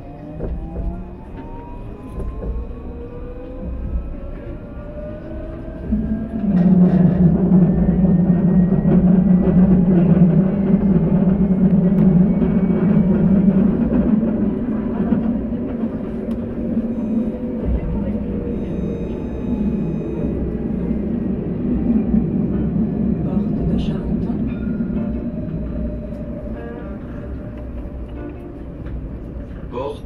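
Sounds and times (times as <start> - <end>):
loud low drone: 0.0 - 29.7
tram motor whine: 0.0 - 30.0.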